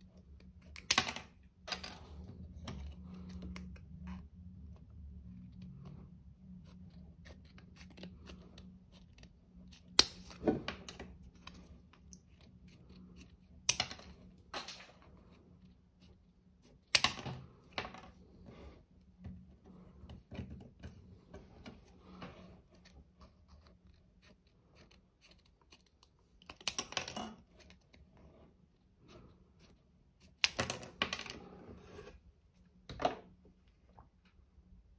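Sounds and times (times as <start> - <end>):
scissors snipping plastic card: 6.7 - 14.0.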